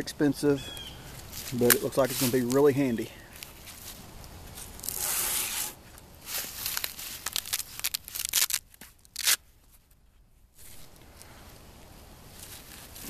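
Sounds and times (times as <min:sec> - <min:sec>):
hook-and-loop ripping open: 0:04.6 - 0:09.5.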